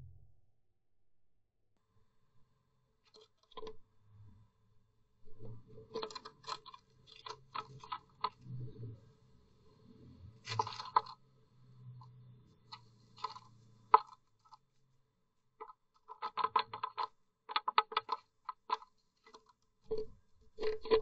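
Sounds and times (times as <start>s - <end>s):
beak tapping on wood: 15.6s - 21.0s.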